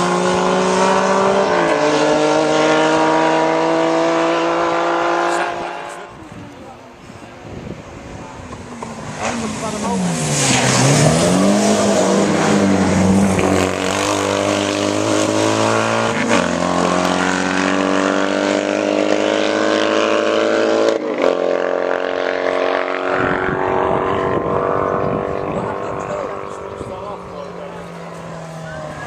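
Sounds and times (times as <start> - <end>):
motorcycle sidecar engine passing: 21.5 - 29.0.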